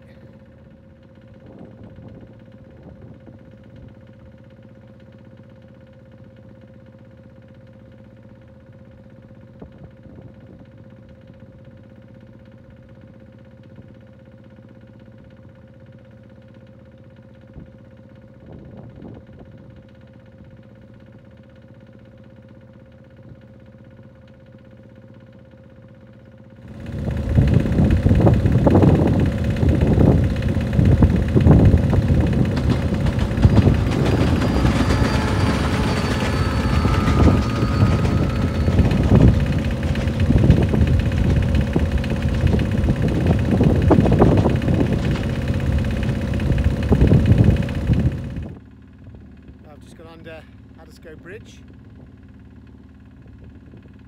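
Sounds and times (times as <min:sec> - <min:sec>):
boat motor hum: 0:20.8 - 0:54.0
wind buffeting microphone: 0:26.8 - 0:45.4, 0:46.4 - 0:48.6.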